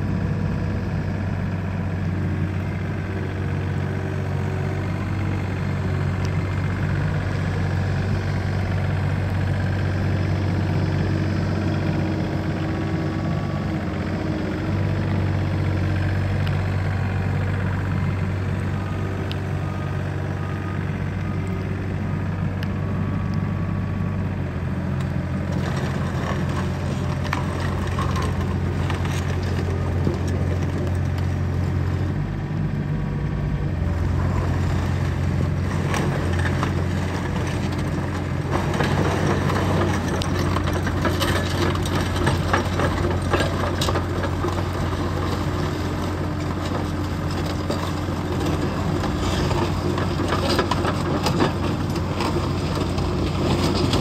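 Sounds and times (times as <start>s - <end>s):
diesel engine running steadily: 0.0s - 54.0s
crawler tracks clattering and clanking: 35.6s - 54.0s.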